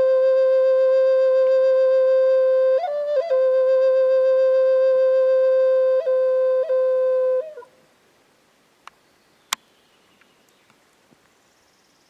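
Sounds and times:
wooden flute playing: 0.0s - 7.7s.

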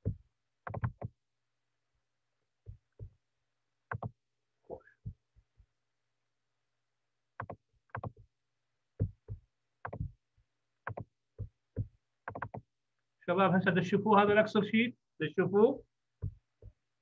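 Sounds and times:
keyboard and mouse clicks: 0.0s - 1.2s, 3.9s - 4.2s, 7.4s - 8.2s, 9.0s - 10.2s, 10.8s - 12.7s.

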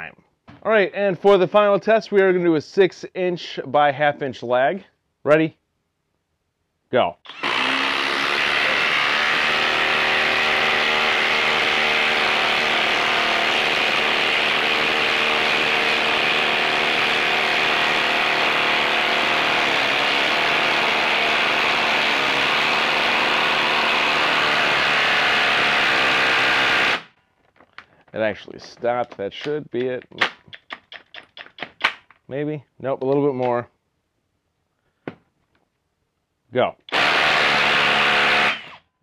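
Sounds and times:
impact driver hammering: 7.3s - 27.1s, 36.9s - 38.8s.

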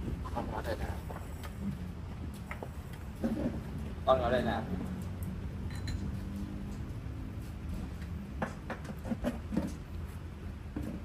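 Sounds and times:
tableware clicking and knocking: 5.7s - 6.2s.

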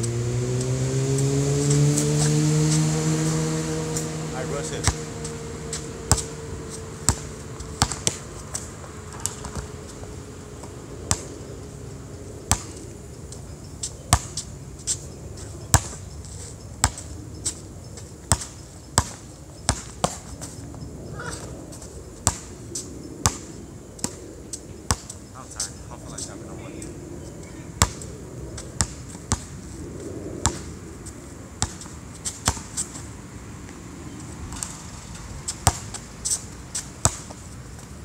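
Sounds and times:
basketball bouncing on hard court: 4.7s - 9.7s, 11.0s - 11.4s, 12.5s - 12.8s, 15.7s - 16.0s, 16.8s - 17.1s, 18.2s - 20.2s, 27.8s - 28.1s, 28.7s - 29.5s, 30.4s - 30.7s, 31.6s - 32.8s, 35.5s - 36.0s, 37.0s - 37.4s.

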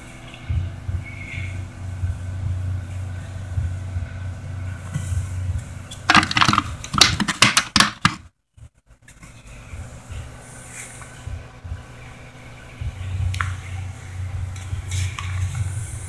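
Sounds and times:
steady low hum: 0.0s - 16.0s
plastic cover clicking and rattling: 6.1s - 8.2s.

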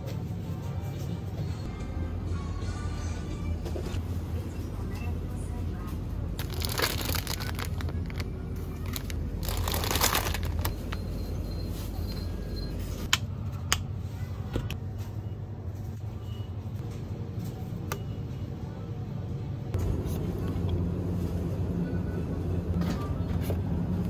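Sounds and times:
plastic snack bag crinkling: 6.4s - 11.0s.

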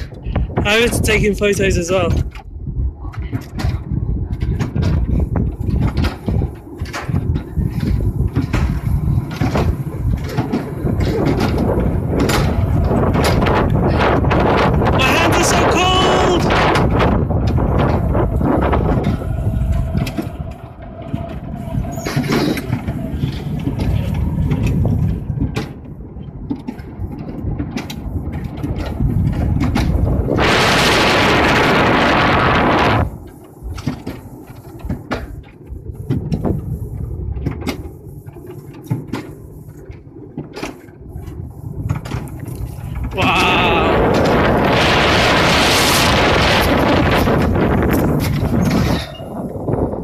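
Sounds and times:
coaster sled wheels rumbling: 0.0s - 50.0s
wind buffeting microphone: 0.0s - 50.0s.

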